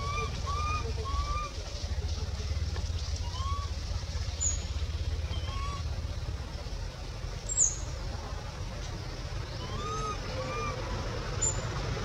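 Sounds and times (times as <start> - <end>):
infant monkey cooing: 0.0 - 1.6, 9.6 - 11.1
steady low rumble: 0.0 - 12.0.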